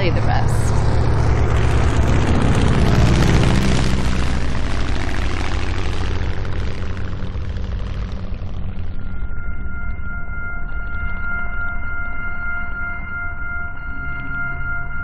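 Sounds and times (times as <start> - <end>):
propeller aircraft engine droning: 0.0 - 15.0
steady high tones: 0.0 - 15.0.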